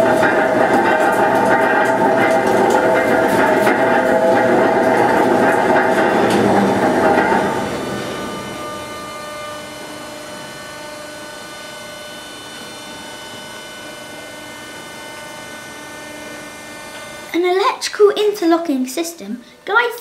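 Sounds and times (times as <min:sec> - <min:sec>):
bridge machinery clatter: 0:00.0 - 0:11.2
bridge machinery hum: 0:00.0 - 0:17.7
thin whining tones: 0:03.8 - 0:17.4.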